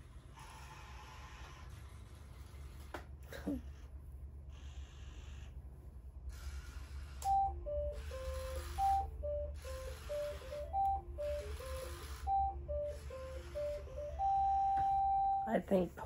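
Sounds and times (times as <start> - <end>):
electronic toy beeping a tune: 7.2 - 15.5.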